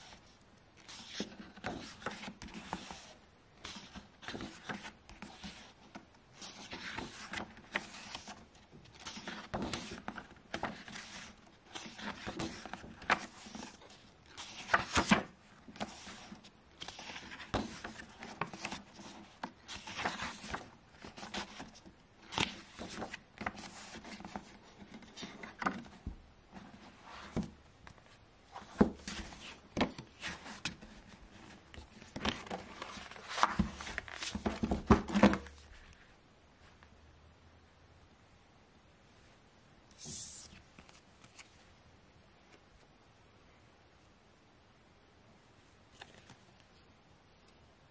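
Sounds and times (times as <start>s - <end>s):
book pages turning: 0.0s - 36.1s, 40.0s - 41.6s, 46.0s - 46.4s.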